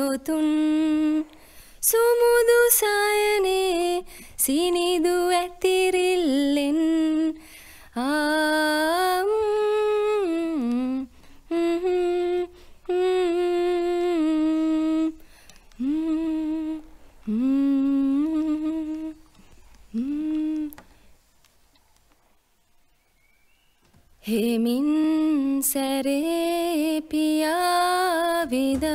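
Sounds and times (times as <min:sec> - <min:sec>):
woman humming: 0:10.3 - 0:19.3, 0:19.9 - 0:20.9.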